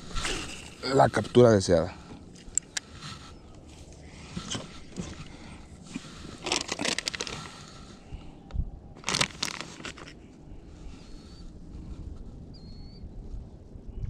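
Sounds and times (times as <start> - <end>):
plastic bag crinkling: 6.0 - 7.7, 9.0 - 10.2.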